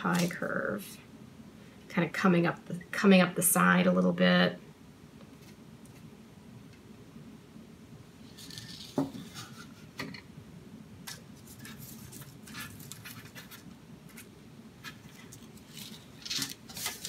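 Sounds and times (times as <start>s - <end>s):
parchment paper rustling on metal: 0.0s - 0.6s, 8.3s - 9.9s, 11.1s - 17.0s.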